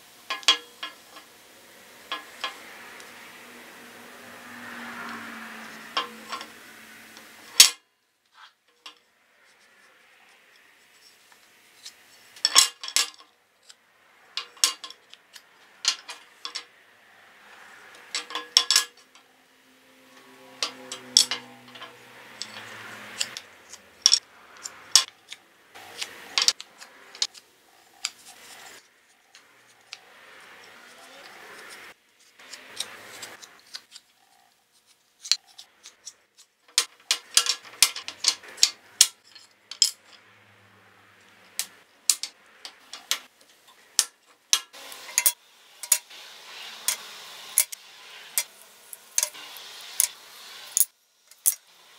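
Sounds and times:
wood strips and tools clattering: 0:00.3 - 0:01.3, 0:04.8 - 0:06.6, 0:17.9 - 0:19.2, 0:20.1 - 0:34.1, 0:34.8 - 0:40.4.

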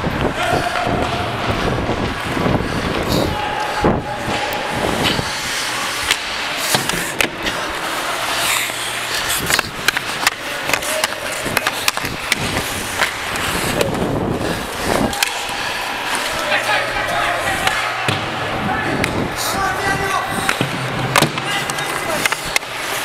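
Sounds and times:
sticks and puck clacking: 0:00.1 - 0:23.0
skate blades scraping on ice: 0:04.2 - 0:17.9, 0:21.4 - 0:23.0.

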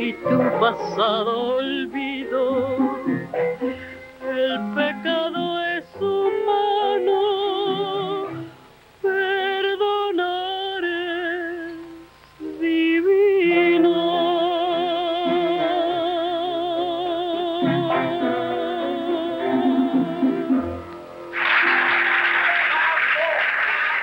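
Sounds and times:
small band playing: 0:00.0 - 0:08.6, 0:17.6 - 0:24.0
woman singing with vibrato: 0:04.2 - 0:08.4, 0:09.0 - 0:11.9, 0:12.6 - 0:20.8.

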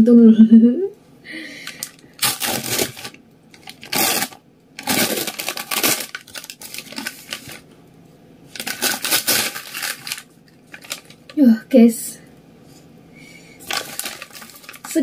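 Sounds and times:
paper wrapping rustling: 0:01.7 - 0:07.7, 0:08.5 - 0:11.2, 0:13.6 - 0:15.0.

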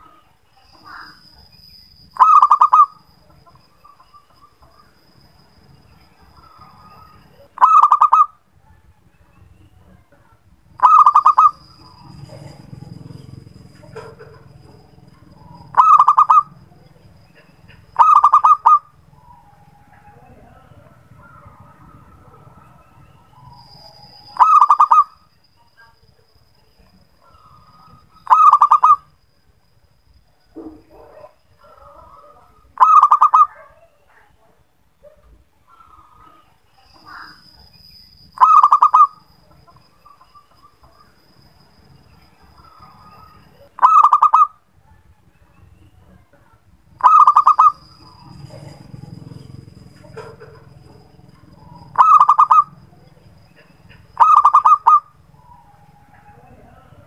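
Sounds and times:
dove cooing: 0:02.2 - 0:04.2, 0:06.4 - 0:08.4, 0:10.8 - 0:25.2, 0:27.2 - 0:29.1, 0:30.9 - 0:33.6, 0:38.4 - 0:39.2, 0:42.6 - 0:44.5, 0:47.0 - 0:57.0.

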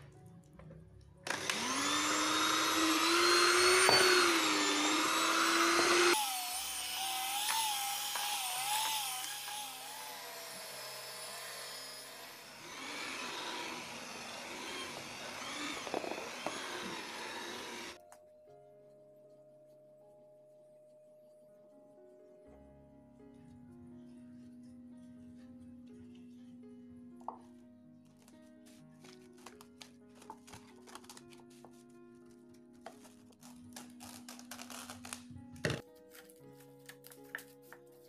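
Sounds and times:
hand mixer motor whine: 0:01.2 - 0:18.0.

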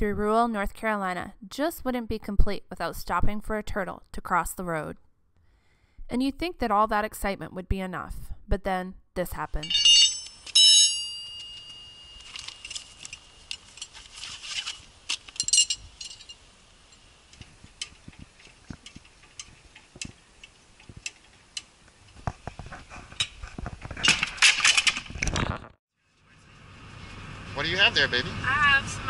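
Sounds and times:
metal tools clinking: 0:09.6 - 0:17.1.

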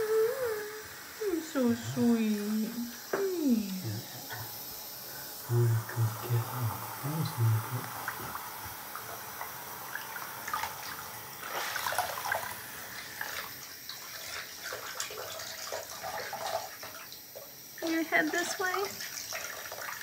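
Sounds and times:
water splashing in a sink: 0:07.2 - 0:20.0.

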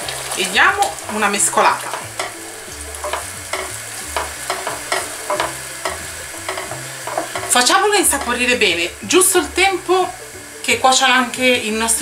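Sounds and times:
sauce sizzling: 0:00.0 - 0:12.0
wooden spoon scraping a pot: 0:00.1 - 0:08.6.

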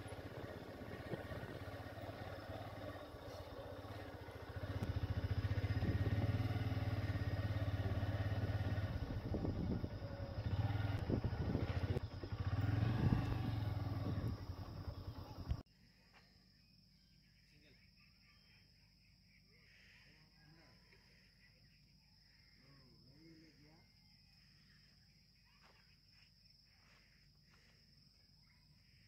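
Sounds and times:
small vehicle engine running: 0:00.0 - 0:15.6.

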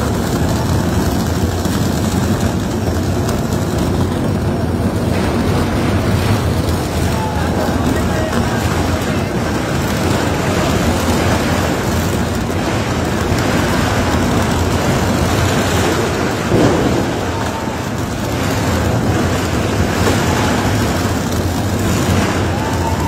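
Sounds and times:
boring machine rumbling: 0:00.0 - 0:23.0
water hoses spraying rock: 0:00.0 - 0:23.0.

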